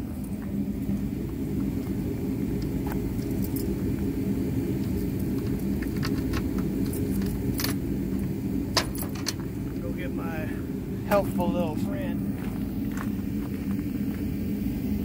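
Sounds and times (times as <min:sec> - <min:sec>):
engine running: 0:00.0 - 0:15.0.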